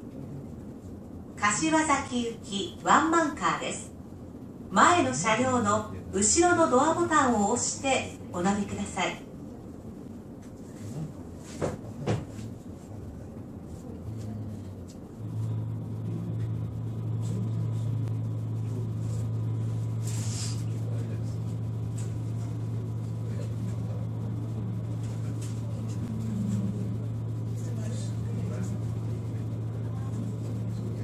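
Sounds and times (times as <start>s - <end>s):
low electrical hum: 0.0s - 31.0s
air hiss: 20.0s - 20.7s.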